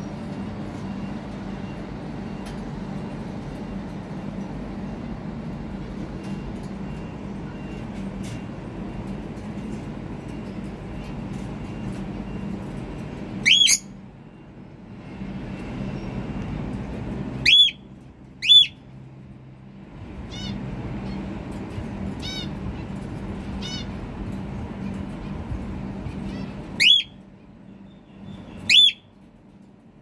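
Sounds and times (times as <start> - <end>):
steady low hum: 0.0 - 30.0
cockatiel whistled calls: 13.4 - 13.9, 17.4 - 17.8, 18.4 - 18.8, 26.8 - 27.2, 28.6 - 29.1.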